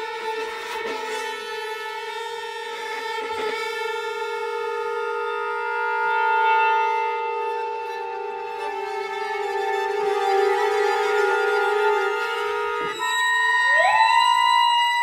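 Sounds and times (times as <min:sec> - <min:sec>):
chamber ensemble playing held notes: 0:03.2 - 0:14.2.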